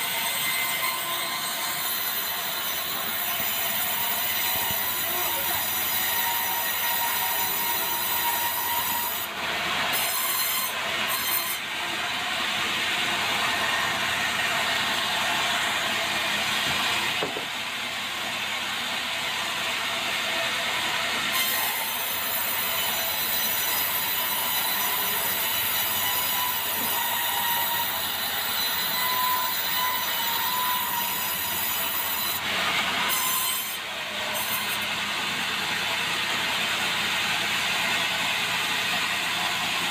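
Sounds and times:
sawmill saw cutting log: 0.0s - 39.9s.

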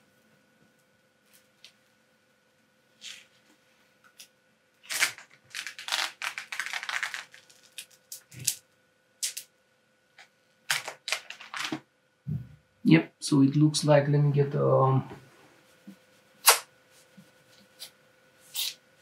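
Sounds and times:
plastic film crackling: 4.8s - 8.6s, 10.7s - 11.8s.

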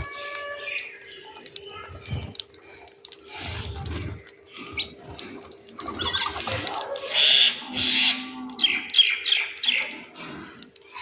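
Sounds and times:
sparrows chirping: 3.2s - 5.2s, 7.0s - 10.1s.

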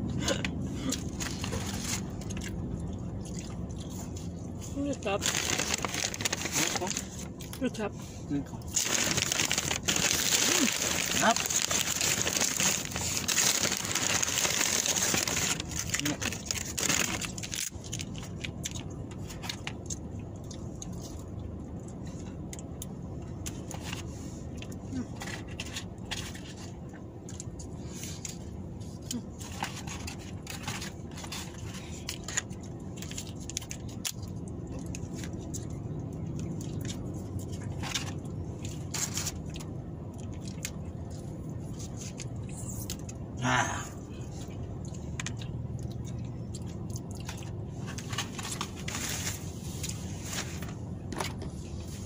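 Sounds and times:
low hum in car cabin: 0.0s - 52.0s
eating sounds: 0.1s - 7.7s
paper packaging rustling: 5.0s - 7.2s, 8.7s - 17.7s.

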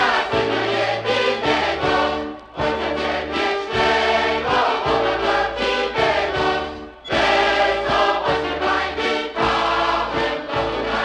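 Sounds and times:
choir singing: 0.0s - 11.0s
polka band playing: 2.2s - 11.0s.

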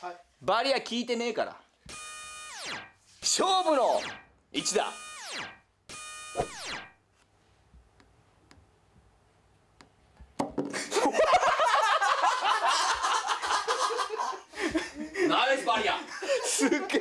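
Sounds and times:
falling synth sound effect: 2.5s - 5.6s, 6.2s - 6.9s.

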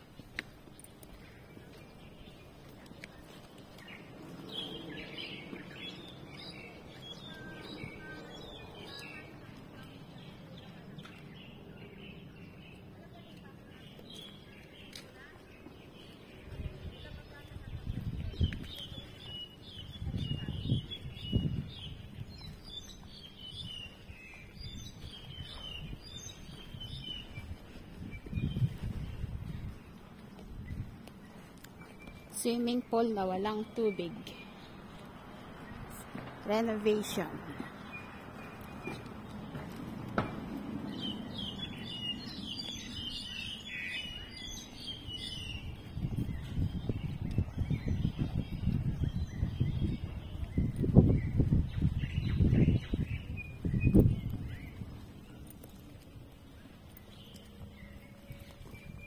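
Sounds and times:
birds chirping: 0.0s - 59.0s
low gusty rumble: 16.3s - 31.6s, 34.4s - 59.0s.

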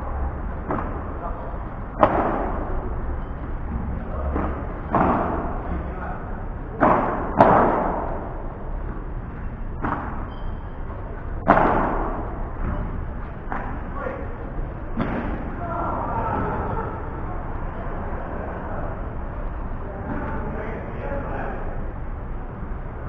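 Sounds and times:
padel ball struck by rackets: 2.0s - 2.6s, 11.4s - 12.3s.

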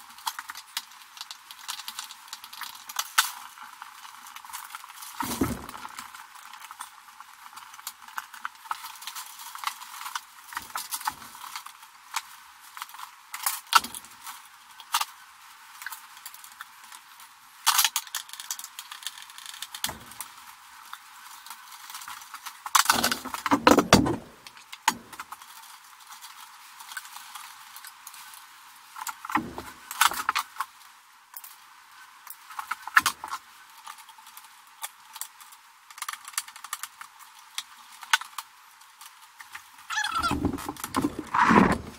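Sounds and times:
cable and tool rattling: 21.8s - 25.5s, 39.9s - 41.9s.

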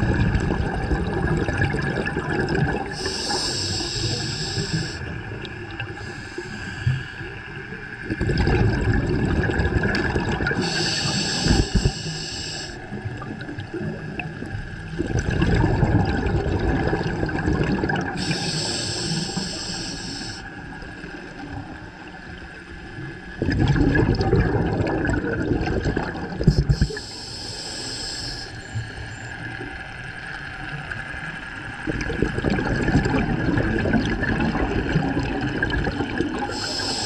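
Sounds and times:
exhaled bubbles gushing: 0.0s - 6.2s, 7.2s - 12.1s, 12.8s - 19.5s, 20.7s - 27.1s, 29.1s - 37.0s
regulator hissing inhalations: 2.9s - 5.1s, 6.0s - 7.4s, 10.6s - 12.9s, 18.2s - 20.6s, 26.4s - 29.3s, 36.4s - 37.0s.

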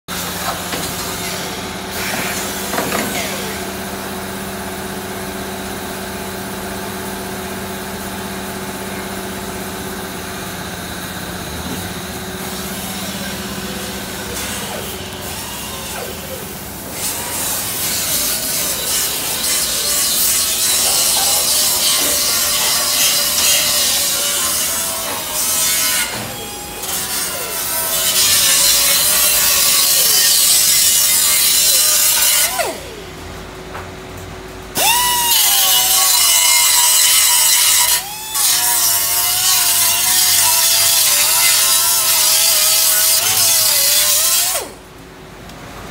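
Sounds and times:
wire brush grinder scouring metal: 12.3s - 33.0s, 34.8s - 44.8s.

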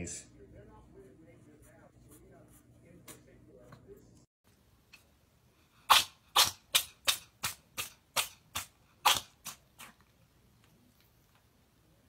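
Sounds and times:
cat sneezing: 5.9s - 6.7s.

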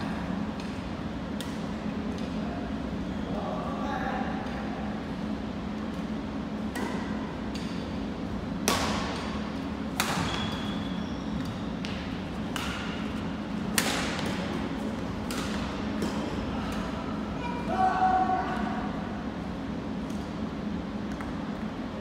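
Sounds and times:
steady low hum: 0.0s - 22.0s
rackets hitting shuttlecock: 6.6s - 7.8s, 8.6s - 10.7s, 11.8s - 16.8s.

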